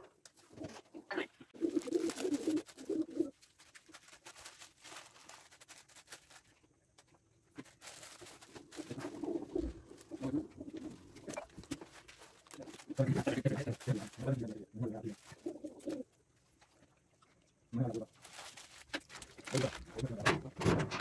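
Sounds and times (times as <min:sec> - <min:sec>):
pigeons cooing: 0:00.4 - 0:03.4, 0:08.4 - 0:16.1
light clicks and rustles: 0:15.1 - 0:21.0.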